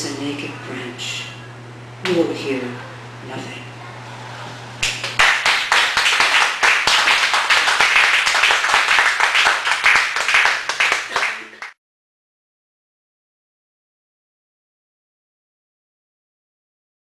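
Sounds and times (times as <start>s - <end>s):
audience applauding: 4.8s - 11.8s.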